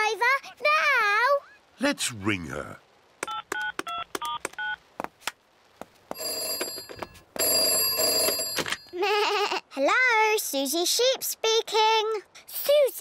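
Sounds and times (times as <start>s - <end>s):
telephone ringing tone: 6.1s - 8.9s.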